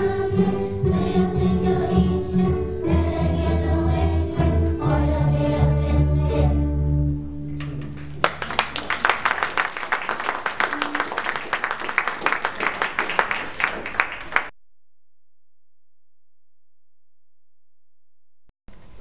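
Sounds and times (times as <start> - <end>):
audience applauding: 7.7 - 14.5.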